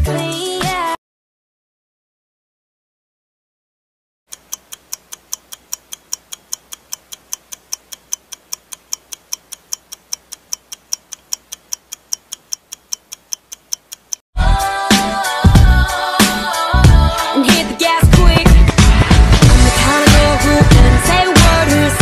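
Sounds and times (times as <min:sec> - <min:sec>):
loud pop music: 0:00.0 - 0:01.0, 0:14.4 - 0:22.0
clock ticking: 0:04.3 - 0:14.2.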